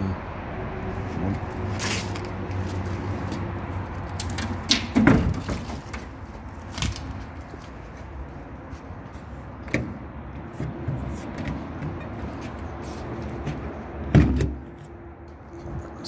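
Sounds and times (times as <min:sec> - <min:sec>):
knocks against bus bodywork: 0:04.7 - 0:06.1.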